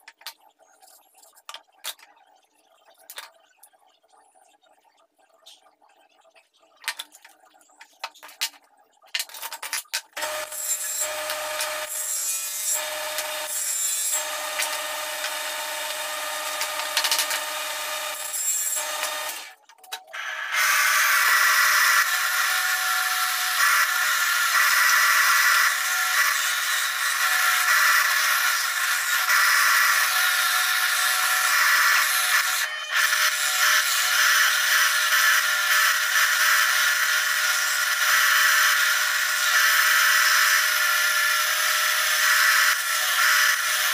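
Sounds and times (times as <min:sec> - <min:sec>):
wooden pieces clacking: 0:06.8 - 0:10.2
disc sander grinding wood: 0:10.2 - 0:19.6, 0:20.2 - 0:43.9
power tool whining: 0:10.2 - 0:19.6, 0:20.2 - 0:43.9.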